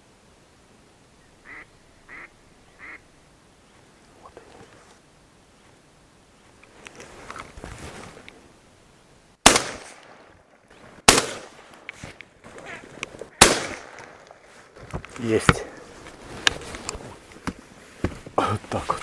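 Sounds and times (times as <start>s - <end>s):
shotgun shots with echo: 9.4s - 10.2s, 11.1s - 11.6s, 13.4s - 14.1s.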